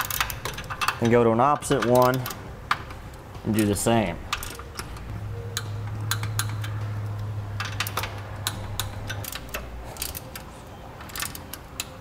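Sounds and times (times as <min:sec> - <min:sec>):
wrench ratchet clicking: 0:00.0 - 0:02.8
low steady hum: 0:00.0 - 0:12.0.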